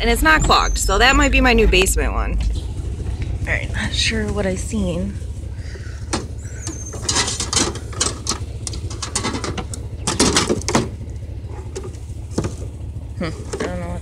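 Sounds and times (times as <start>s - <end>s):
junk clunking and rattling in bin: 6.1s - 12.7s.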